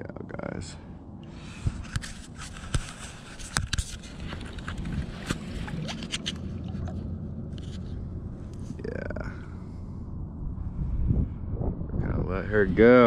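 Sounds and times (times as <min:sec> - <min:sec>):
fish handling knocks and scrapes: 0:01.6 - 0:07.0
low rumble: 0:04.0 - 0:13.0.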